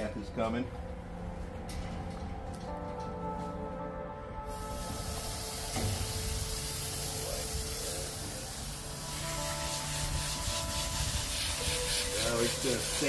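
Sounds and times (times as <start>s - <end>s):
background music: 0.0s - 13.0s
garden hose spraying water: 4.5s - 13.0s.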